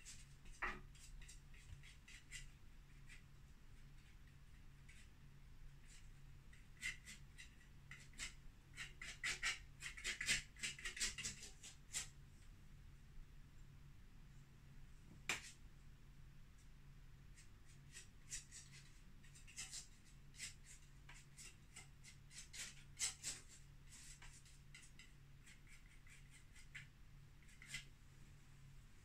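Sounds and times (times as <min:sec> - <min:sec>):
low steady hum: 0:12.1 - 0:18.0
paintbrush scratching on canvas: 0:17.4 - 0:27.9.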